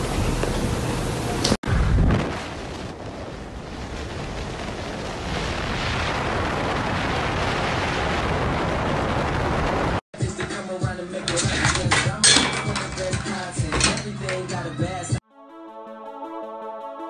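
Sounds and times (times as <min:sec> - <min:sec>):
wind rushing over microphone: 0:01.6 - 0:10.0.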